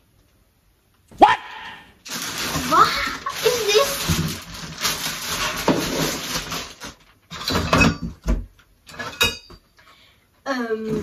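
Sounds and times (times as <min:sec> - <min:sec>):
cardboard rustling: 0:02.1 - 0:07.2.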